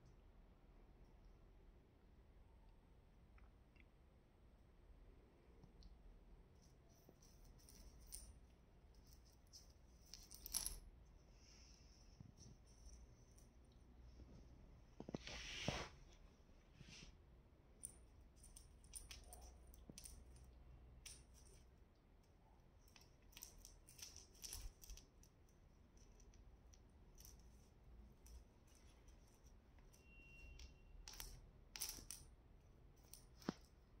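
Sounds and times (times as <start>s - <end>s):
bead necklace clinking on floor: 6.6s - 11.1s, 17.8s - 33.9s.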